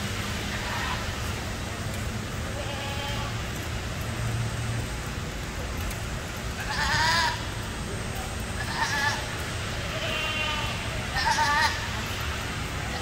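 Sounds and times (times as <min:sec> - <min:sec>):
goats bleating: 0:02.6 - 0:03.4, 0:06.6 - 0:07.5, 0:08.6 - 0:12.0.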